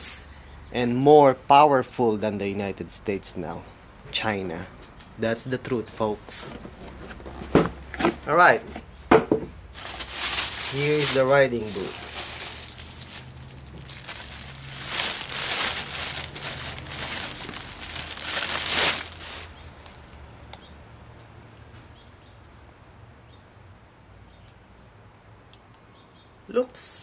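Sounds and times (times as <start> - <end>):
plastic bag crinkling: 9.7 - 20.2.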